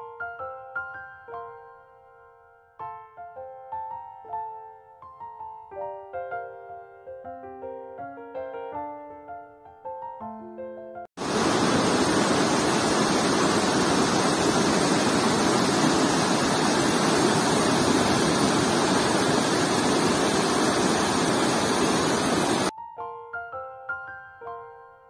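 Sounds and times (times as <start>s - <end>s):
piano music: 0.0s - 11.1s, 22.6s - 25.0s
river rushing over rocks: 11.2s - 22.7s.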